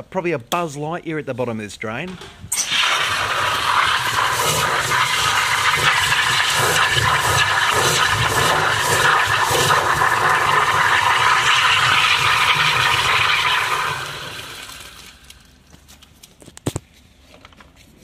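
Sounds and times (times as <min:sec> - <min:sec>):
high-pressure water spraying: 0:02.6 - 0:14.9.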